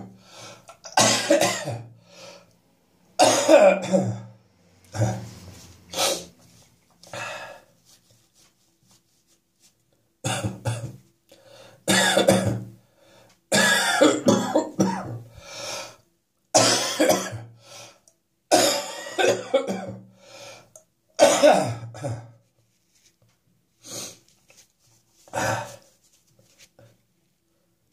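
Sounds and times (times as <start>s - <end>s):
man coughing: 0.9s - 1.9s, 3.2s - 4.3s, 11.9s - 12.6s, 13.5s - 15.2s, 16.6s - 17.5s, 21.2s - 22.4s.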